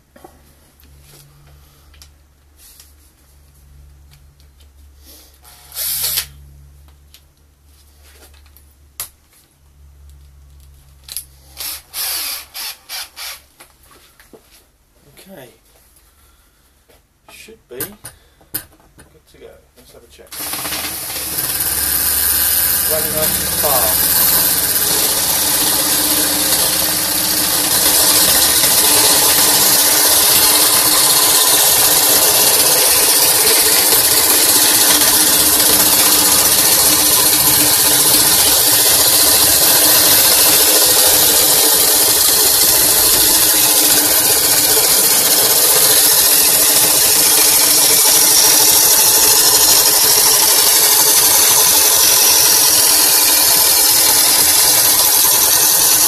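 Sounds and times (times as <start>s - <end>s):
drill motor whirring: 5.4s - 6.4s, 11.4s - 13.5s, 20.3s - 56.0s.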